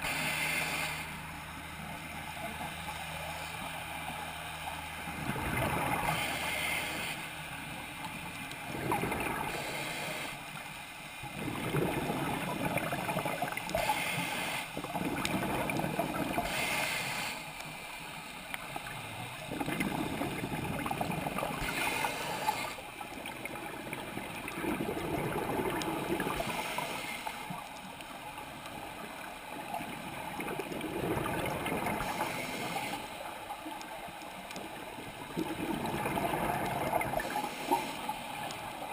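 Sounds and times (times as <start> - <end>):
regulator hissing inhale: 0.0 - 1.2, 6.0 - 7.4, 9.4 - 10.6, 13.7 - 14.8, 16.4 - 17.9, 21.6 - 22.9, 26.2 - 27.6, 32.0 - 33.4, 37.2 - 38.4
exhaled bubbles bursting: 8.7 - 9.5, 11.4 - 13.8, 14.8 - 16.5, 19.5 - 21.9, 23.2 - 26.5, 29.9 - 32.2, 35.2 - 37.4.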